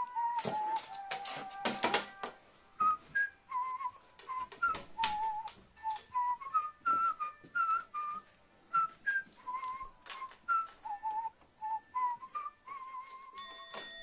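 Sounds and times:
person whistling a tune: 0.0s - 13.6s.

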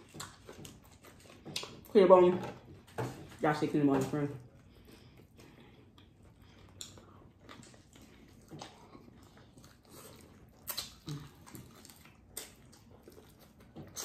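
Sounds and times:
people chewing: 0.0s - 14.0s.

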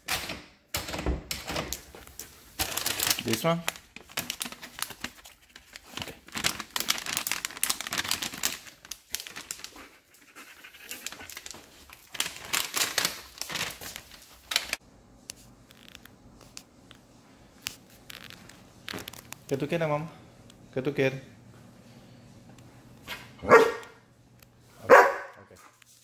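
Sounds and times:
plastic treat bag crinkling: 1.7s - 14.8s, 15.4s - 16.6s, 17.5s - 19.9s
dog panting and sniffing: 9.5s - 11.7s.

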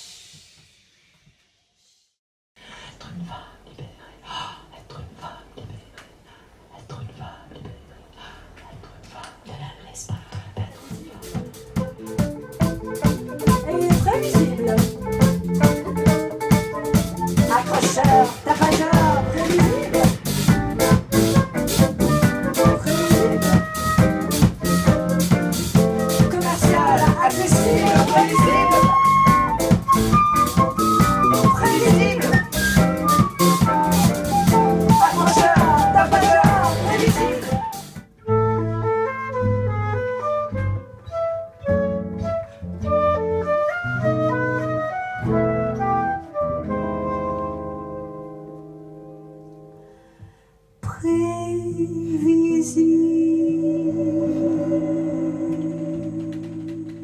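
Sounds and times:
drum kit beat: 10.5s - 38.2s
electric guitar: 11.2s - 38.0s
flute melody: 11.2s - 48.6s.

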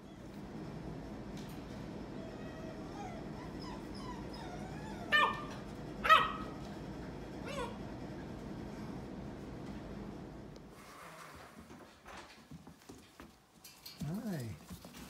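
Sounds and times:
puppies whimpering: 2.2s - 5.6s
puppy yips: 2.3s - 6.5s.

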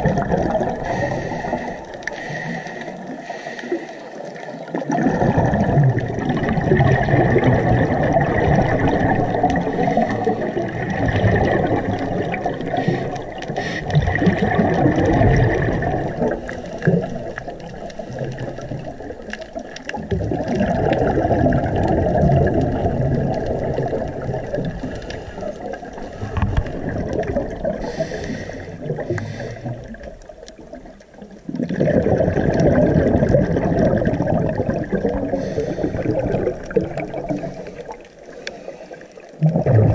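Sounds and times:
regulator bubbles: 0.0s - 3.2s, 4.1s - 39.9s
underwater rushing and gurgling: 0.0s - 39.9s.

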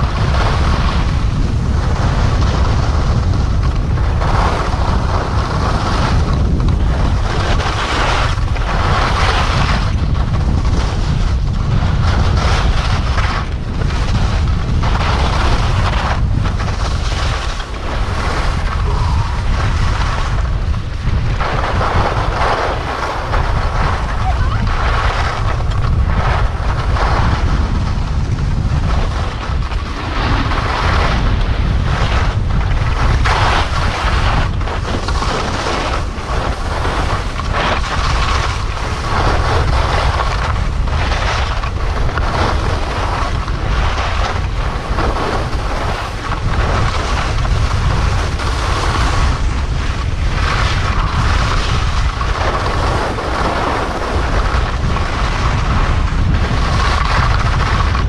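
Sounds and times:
skis scraping on packed snow: 0.0s - 58.0s
wind rushing over microphone: 0.0s - 58.0s.

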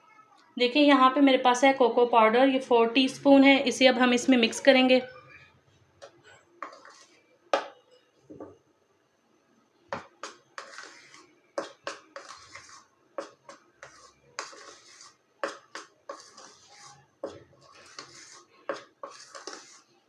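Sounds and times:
metal spoon scraping ceramic bowl: 6.3s - 7.2s, 10.0s - 19.9s.

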